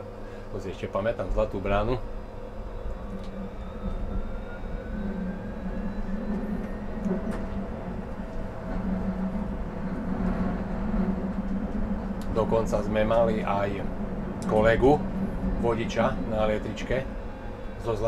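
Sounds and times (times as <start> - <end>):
traction drive whine: 0.0 - 18.0
tram rumbling on track: 0.0 - 18.0.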